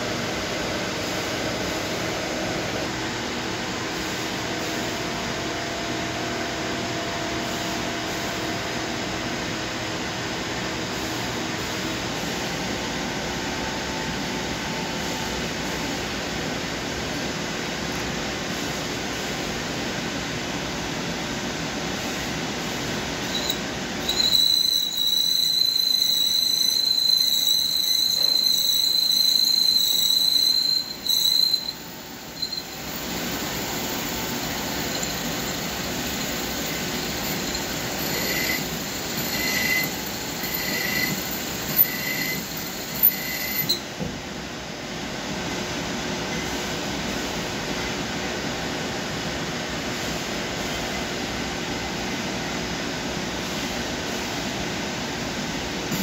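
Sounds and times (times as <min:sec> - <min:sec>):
lathe machine running: 0:22.9 - 0:43.8
high-pitched cutting squeal: 0:23.3 - 0:43.8
lathe cutting metal: 0:23.3 - 0:43.8.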